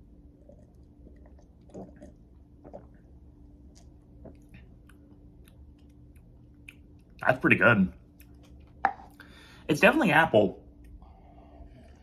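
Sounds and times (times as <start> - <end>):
man sipping and swallowing: 0.3 - 6.0
lip smacks and clicks: 3.8 - 7.2.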